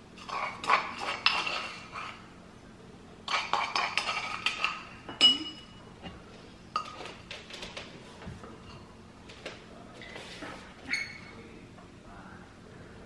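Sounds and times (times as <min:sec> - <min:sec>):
metal spoon scraping a mortar: 0:00.2 - 0:02.3, 0:03.3 - 0:04.9.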